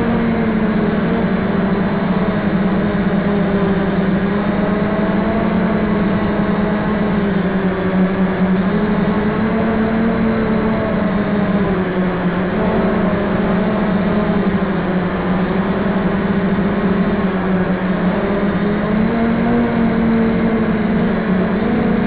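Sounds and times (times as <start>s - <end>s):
drone motors humming: 0.0s - 22.0s.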